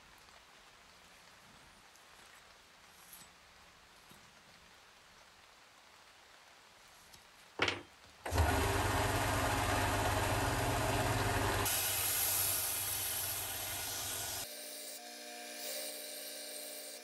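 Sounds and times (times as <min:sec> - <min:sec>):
belt sander humming: 0:08.3 - 0:14.5
metal grinding hiss on sanding belt: 0:11.6 - 0:17.0.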